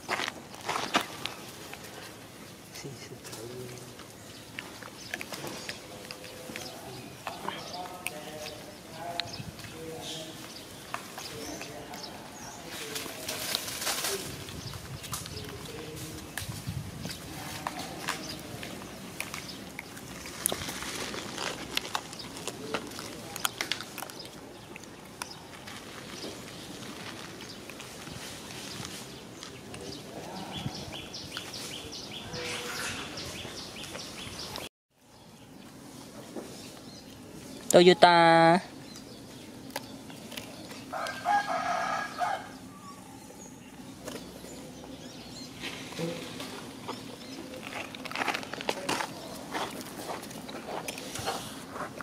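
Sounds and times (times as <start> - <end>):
sharp clicks and crackles: 17.7 - 28.0
rooster crowing: 40.9 - 42.8.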